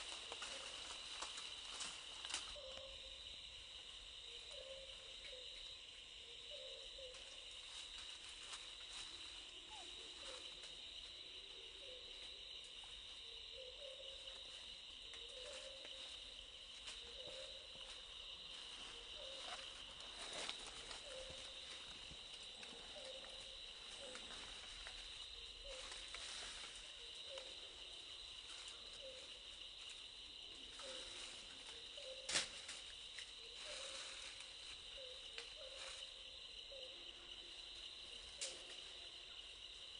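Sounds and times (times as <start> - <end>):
insects trilling: 0.0 - 39.9.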